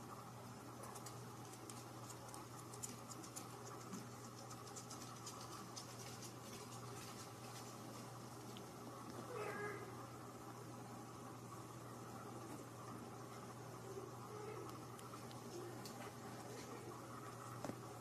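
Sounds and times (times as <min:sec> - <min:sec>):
steady low hum: 0:00.0 - 0:18.0
kitten scratching fabric: 0:00.9 - 0:08.1.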